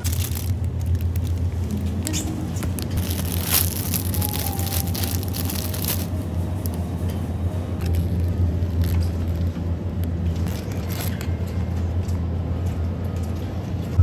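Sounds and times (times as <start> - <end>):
plastic-wrapped produce crinkling: 0.0 - 7.0, 7.8 - 11.4
steady low rumble: 0.0 - 14.0.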